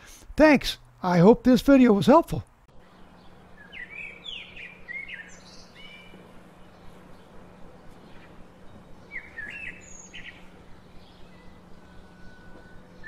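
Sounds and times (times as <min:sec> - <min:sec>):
faint low hum: 0:00.0 - 0:13.0
outdoor background noise: 0:00.0 - 0:13.0
songbird chirping: 0:02.7 - 0:13.0.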